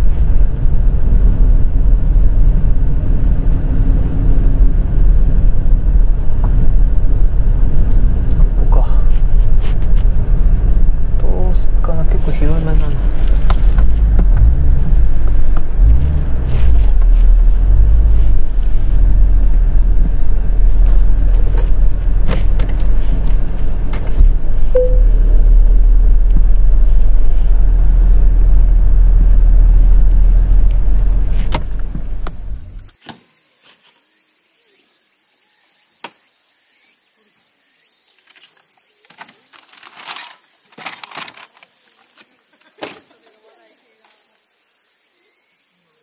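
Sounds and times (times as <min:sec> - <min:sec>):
car engine droning: 0:00.0 - 0:33.0.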